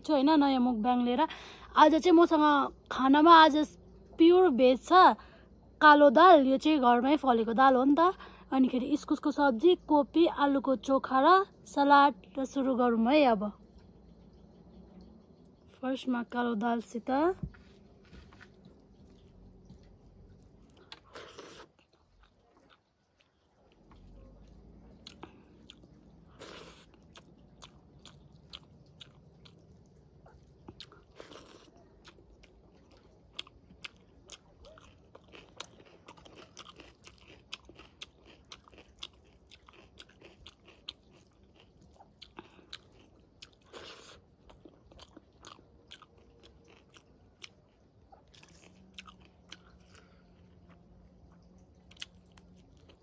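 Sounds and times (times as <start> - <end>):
person chewing: 17.7 - 53.0.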